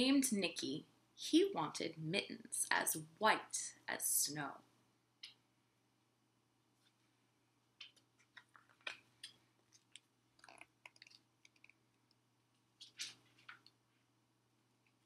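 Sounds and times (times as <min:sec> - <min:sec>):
book pages rustling: 0:12.8 - 0:13.7.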